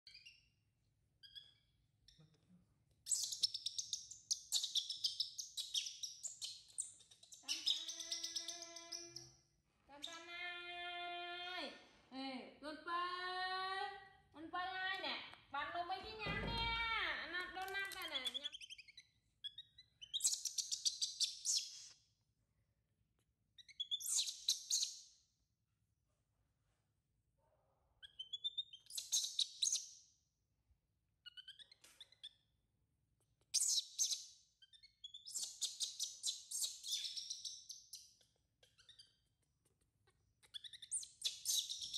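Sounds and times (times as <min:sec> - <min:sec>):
baby monkey squealing: 0:03.1 - 0:09.3, 0:33.6 - 0:38.0, 0:40.4 - 0:41.9
baby monkey crying: 0:07.4 - 0:09.3.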